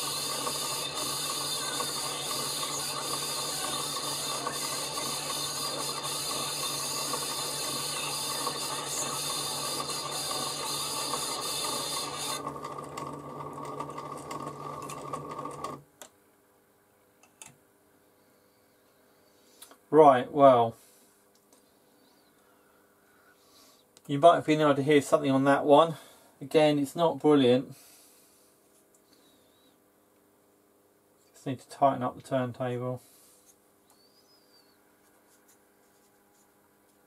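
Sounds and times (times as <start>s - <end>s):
motor whine and gear grinding: 0.0s - 15.8s
record hiss: 15.8s - 37.0s.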